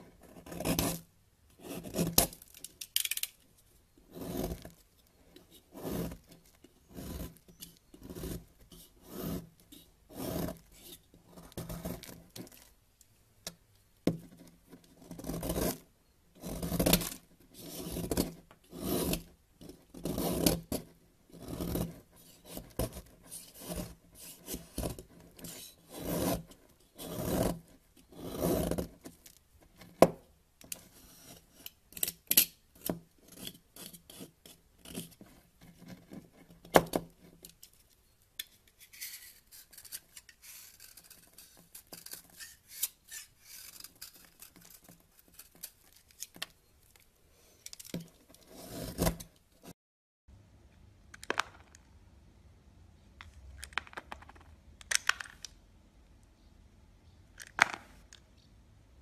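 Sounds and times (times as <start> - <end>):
knife blade scraping soap: 0.2 - 3.3, 4.1 - 12.7, 14.4 - 15.8, 16.4 - 29.4, 30.7 - 37.8, 38.4 - 49.7.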